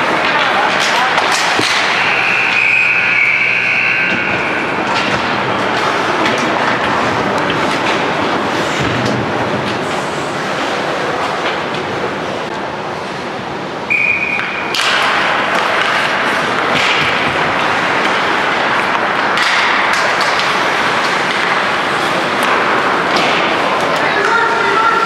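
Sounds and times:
spectator noise: 0:00.6 - 0:06.5.

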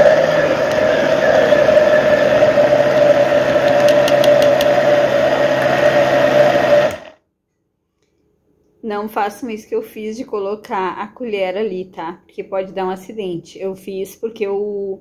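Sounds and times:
blender motor running: 0:00.0 - 0:07.2.

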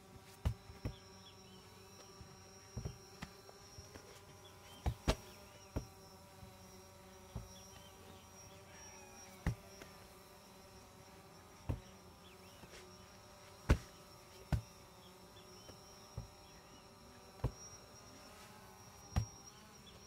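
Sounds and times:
steady high buzz: 0:00.0 - 0:20.0
heavy balls thumping on turf: 0:00.3 - 0:01.0, 0:02.8 - 0:03.3, 0:04.8 - 0:05.9, 0:13.6 - 0:14.7.

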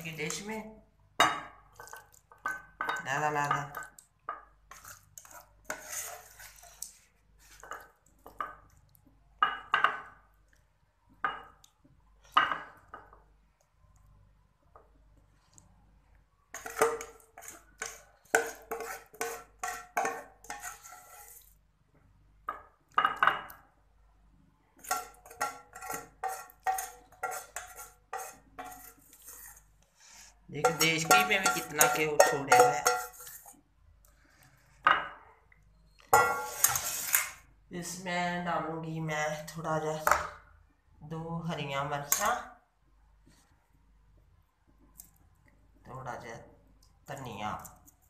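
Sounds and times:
spoon scraping cooking pot: 0:01.5 - 0:08.8, 0:16.5 - 0:21.6, 0:24.8 - 0:35.2, 0:35.9 - 0:37.5
metal spoon knocking on pot: 0:30.6 - 0:33.1.

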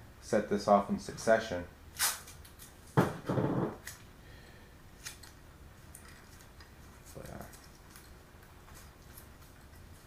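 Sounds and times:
tape ripping off roll: 0:02.0 - 0:04.0
faint clicks and rustles of tape: 0:05.0 - 0:10.0.

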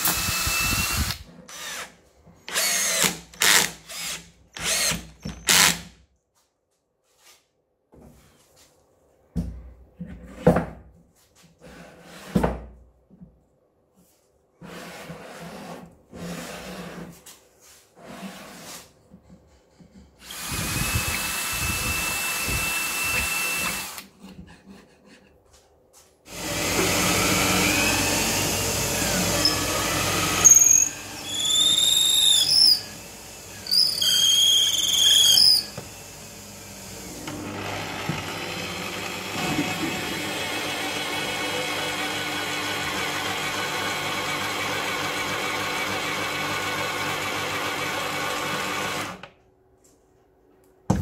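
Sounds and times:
drill press boring into wood: 0:00.0 - 0:01.9, 0:02.5 - 0:05.8, 0:20.2 - 0:24.0, 0:26.3 - 0:49.3
drill bit squealing: 0:28.9 - 0:35.8.

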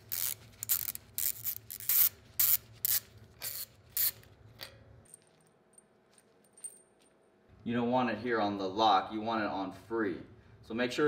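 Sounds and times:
hand ratchet clicking: 0:00.0 - 0:04.8.

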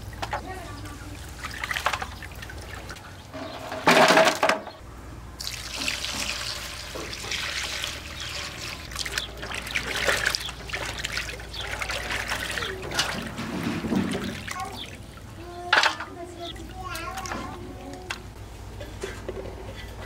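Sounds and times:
water trickling and splashing: 0:00.0 - 0:04.1, 0:05.4 - 0:18.4
loud water pour: 0:05.4 - 0:15.3.

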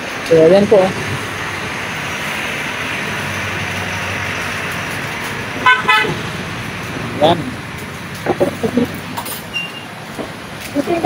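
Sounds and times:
steady background noise: 0:00.0 - 0:11.0
vehicle horn tooting: 0:05.6 - 0:06.2.

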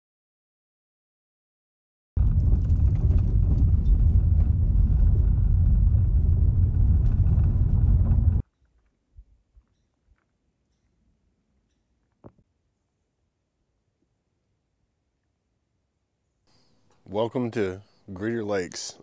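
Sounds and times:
loud low rumbling: 0:02.2 - 0:08.4.

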